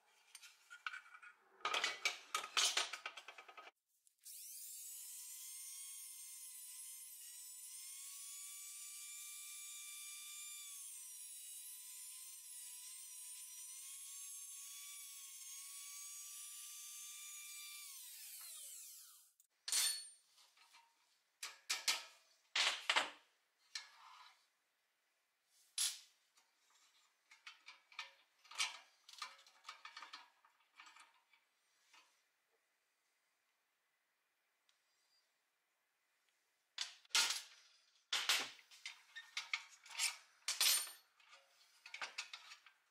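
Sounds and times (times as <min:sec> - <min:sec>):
rotary tool cutting metal: 0:04.3 - 0:19.4.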